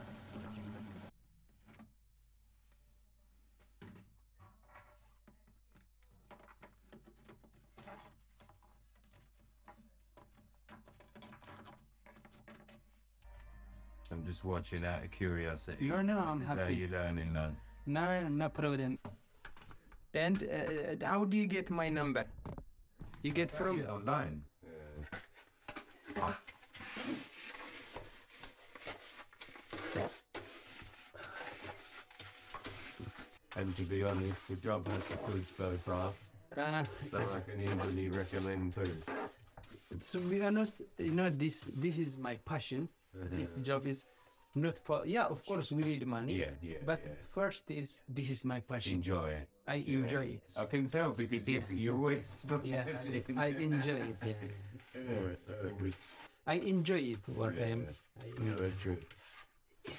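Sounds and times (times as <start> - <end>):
hand brush sweeping sawdust: 32.6 - 36.2, 36.8 - 40.6.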